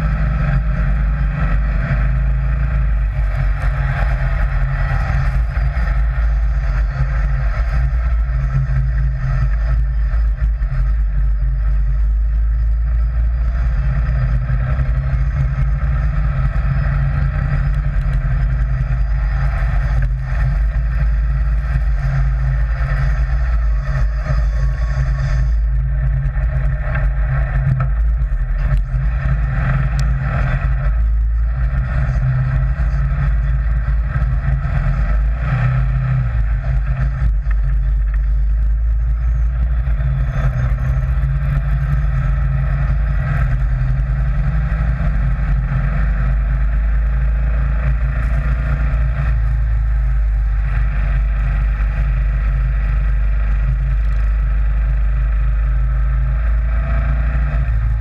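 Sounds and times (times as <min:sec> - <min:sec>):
dune buggy engine running: 0:00.0 - 0:58.0
low rumble: 0:00.0 - 0:58.0.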